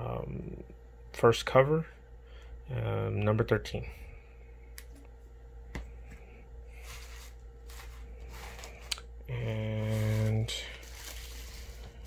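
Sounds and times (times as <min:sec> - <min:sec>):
faint steady hum: 0:00.0 - 0:12.0
comic books rustling: 0:06.7 - 0:08.9, 0:09.6 - 0:12.0.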